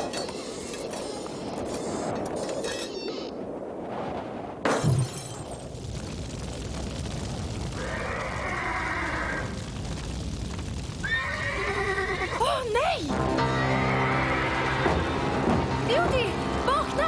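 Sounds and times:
horse neighing: 11.1s - 12.5s, 13.6s - 15.0s.

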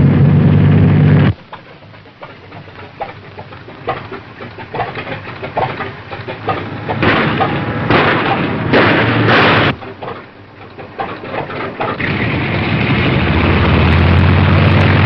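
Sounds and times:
film soundtrack hiss: 0.0s - 8.8s
car engine and rushing: 5.6s - 15.0s.

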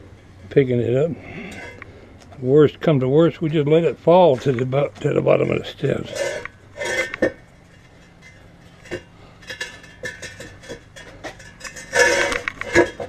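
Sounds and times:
metal clinking on concrete steps: 6.0s - 13.0s.

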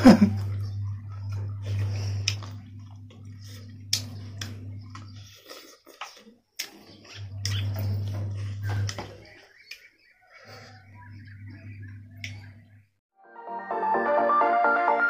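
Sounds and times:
wet eating by hand: 0.0s - 12.5s
steady low hum: 0.0s - 13.0s
chewing: 0.4s - 10.9s.

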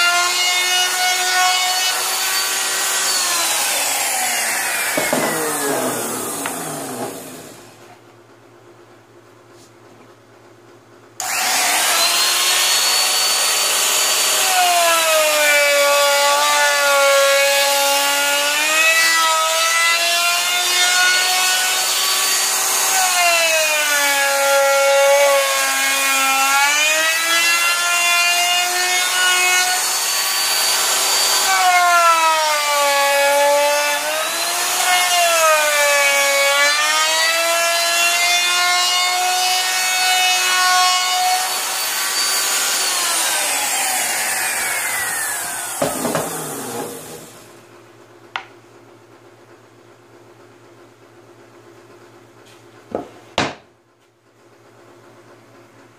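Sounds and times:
wood router whining: 0.0s - 8.0s, 11.2s - 47.6s.

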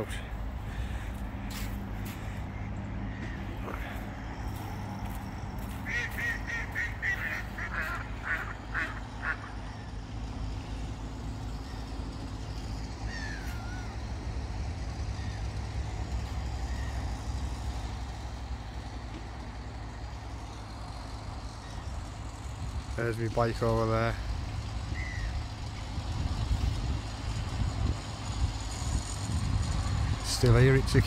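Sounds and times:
small engine idling: 0.0s - 31.0s
ducks quacking: 0.6s - 10.0s.

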